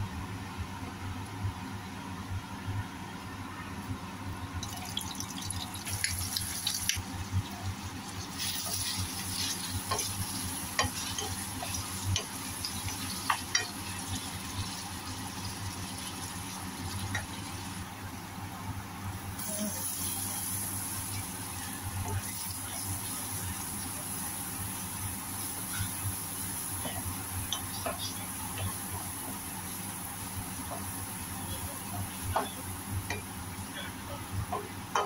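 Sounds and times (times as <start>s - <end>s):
onions sizzling in a pan: 4.6s - 18.0s, 19.2s - 35.0s
wooden spoon stirring and tapping: 8.4s - 14.8s.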